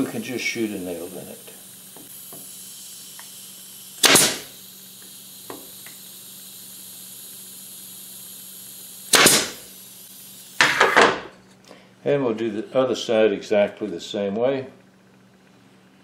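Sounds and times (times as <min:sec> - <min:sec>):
pneumatic nailer firing: 0:01.8 - 0:06.8, 0:07.9 - 0:11.3.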